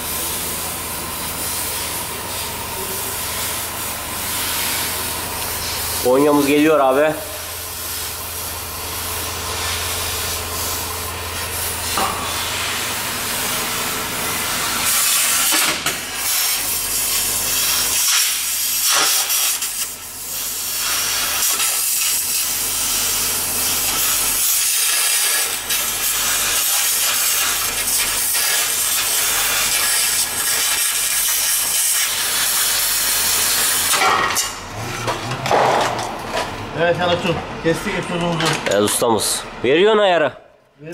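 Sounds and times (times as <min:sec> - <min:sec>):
metal cutting hiss: 0:01.2 - 0:06.7, 0:07.3 - 0:34.3.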